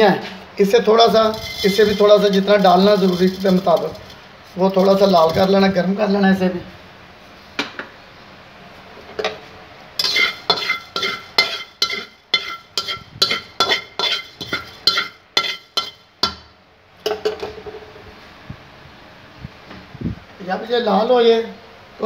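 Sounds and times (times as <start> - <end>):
seeds stirred in a dry pan: 1.0 - 5.6, 10.0 - 16.0
utensil scraping and clinking a metal pan: 1.0 - 5.6, 10.0 - 16.4.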